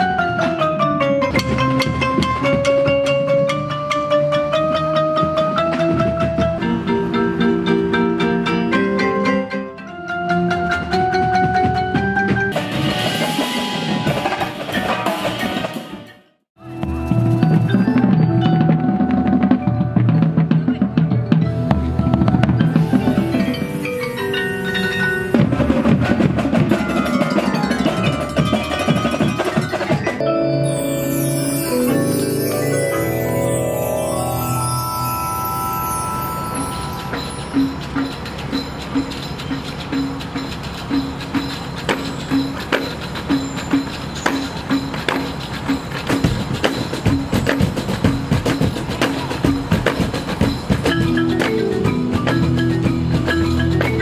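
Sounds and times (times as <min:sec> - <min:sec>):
marimbas playing: 0:00.0 - 0:16.0, 0:16.6 - 0:54.0
cymbals: 0:12.3 - 0:54.0.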